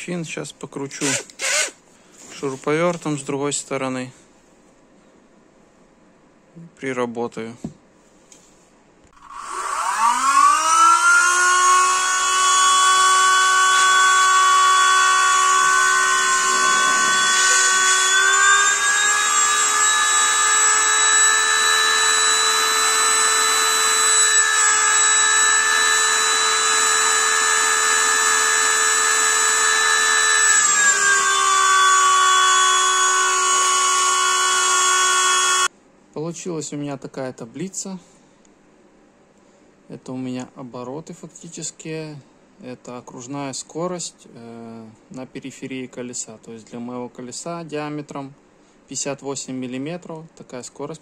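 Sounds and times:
high-pitched fan whine: 0:09.1 - 0:38.0.

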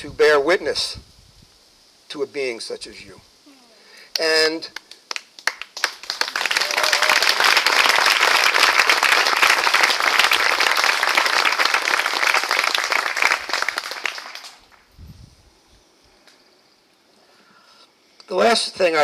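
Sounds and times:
audience applauding: 0:04.8 - 0:14.9.

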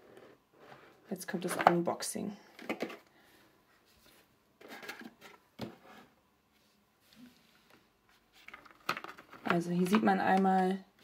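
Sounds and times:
box rustles and scrapes: 0:03.8 - 0:06.2.

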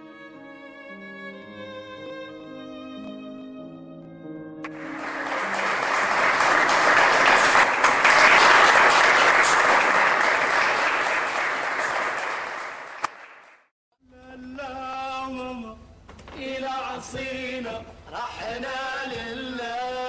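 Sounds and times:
audience applauding: 0:04.6 - 0:13.7.

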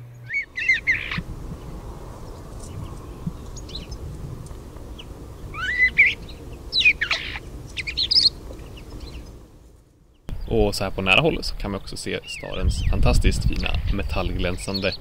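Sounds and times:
low background noise: 0:00.0 - 0:15.0
starling whistles and chirps: 0:00.2 - 0:04.1, 0:05.0 - 0:09.3.

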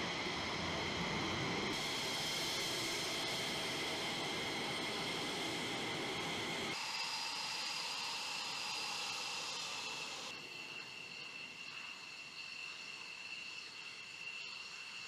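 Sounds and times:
jet exhaust rush: 0:00.0 - 0:10.3
jet turbine whine: 0:00.0 - 0:15.0.

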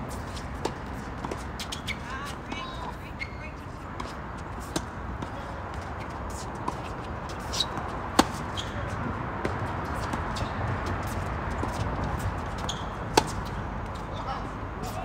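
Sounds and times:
steady background noise: 0:00.0 - 0:15.0
racket hitting ball: 0:04.0 - 0:13.6.

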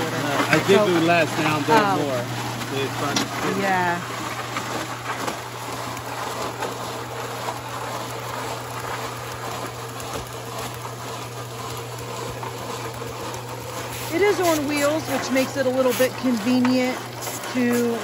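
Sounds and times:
concrete mixer humming: 0:00.0 - 0:18.0
wet concrete sliding down chute: 0:00.0 - 0:18.0.

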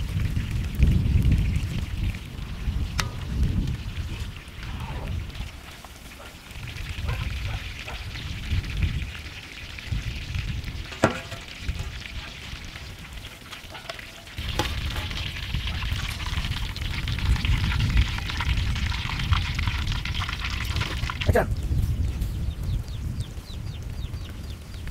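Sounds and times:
deep-frying oil sizzle: 0:00.0 - 0:24.9
metal spoon knocking against pan: 0:11.0 - 0:11.5.

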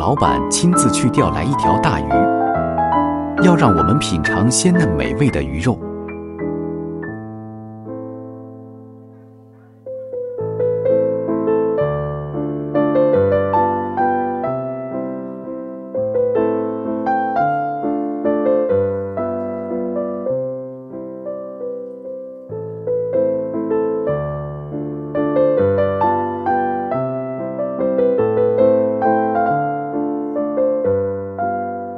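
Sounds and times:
gentle piano music: 0:00.0 - 0:31.9.

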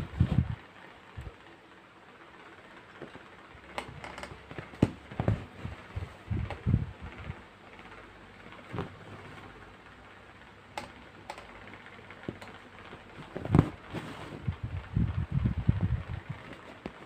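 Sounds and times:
soft thumps and rustling: 0:03.9 - 0:07.3, 0:08.6 - 0:09.5, 0:13.0 - 0:14.7.

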